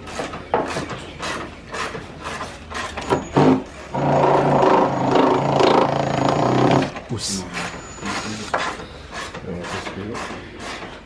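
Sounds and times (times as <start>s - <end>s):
hand tools clicking and scraping: 0.0s - 7.0s, 7.6s - 11.0s
cordless drill running: 3.9s - 6.9s.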